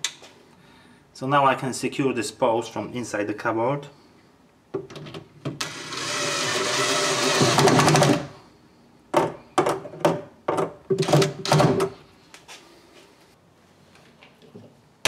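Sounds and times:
cordless drill driving a screw: 5.6 - 8.3.

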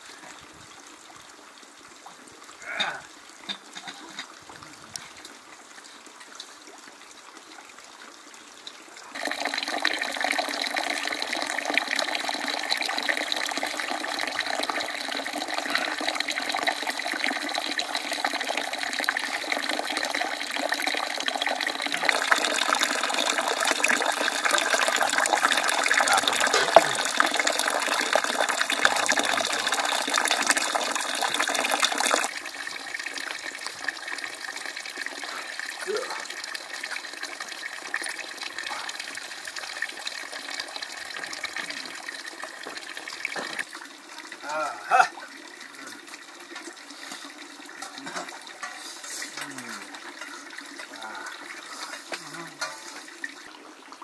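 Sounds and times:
running water: 0.0 - 54.0.

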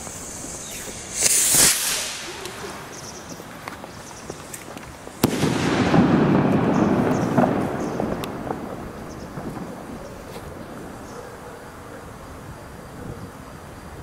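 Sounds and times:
firework bang: 0.0 - 3.3, 4.6 - 11.2
firework rocket hissing launch: 0.0 - 11.1.

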